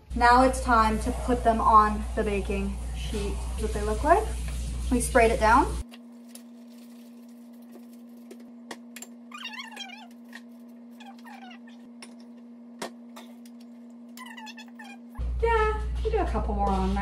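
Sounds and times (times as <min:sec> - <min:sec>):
pet's high wavering cries: 0:09.3 - 0:10.2, 0:11.0 - 0:11.9, 0:14.2 - 0:15.2.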